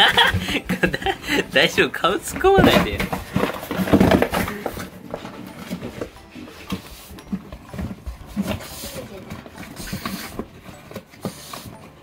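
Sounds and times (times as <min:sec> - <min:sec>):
dog paw steps: 0:02.1 - 0:06.9
cardboard box scraping and knocking: 0:02.2 - 0:12.0.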